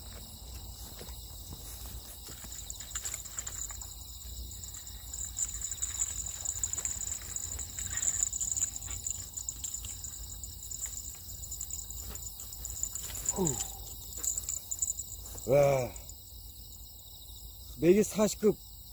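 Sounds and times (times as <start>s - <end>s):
crickets trilling: 0.0s - 18.9s
small clicks and rustles: 1.5s - 15.4s.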